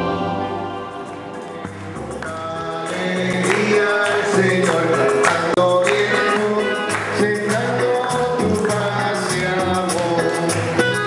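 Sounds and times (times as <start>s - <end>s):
electronic keyboard music: 0.0s - 11.0s.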